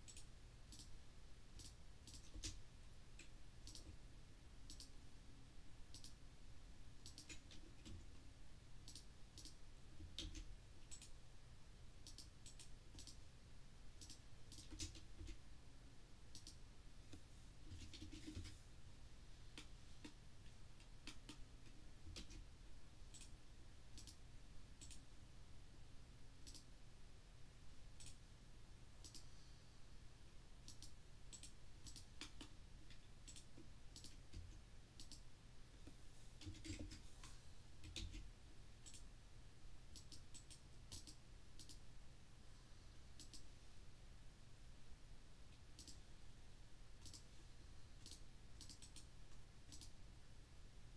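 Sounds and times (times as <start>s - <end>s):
mouse and keyboard clicking: 0.0s - 0.9s, 1.6s - 2.6s, 3.2s - 4.0s, 4.7s - 4.9s, 5.9s - 6.2s, 7.0s - 8.0s, 8.8s - 11.2s, 12.0s - 13.2s, 14.0s - 15.4s, 16.3s - 18.6s, 20.8s - 22.4s, 24.0s - 24.2s, 24.8s - 25.0s, 26.4s - 26.7s, 28.0s - 28.2s, 29.0s - 29.3s, 30.6s - 35.2s, 36.4s - 38.2s, 38.8s - 39.0s, 39.9s - 41.8s, 43.2s - 43.5s, 45.8s - 46.0s, 47.0s - 47.2s, 48.0s - 49.1s, 49.7s - 50.0s
low steady hum: 0.0s - 50.9s.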